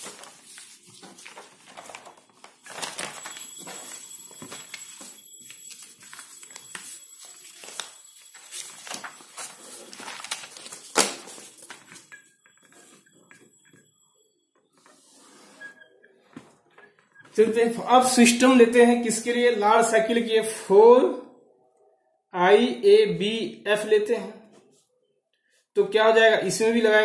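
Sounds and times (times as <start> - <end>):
paper rustling: 0.0 - 13.4.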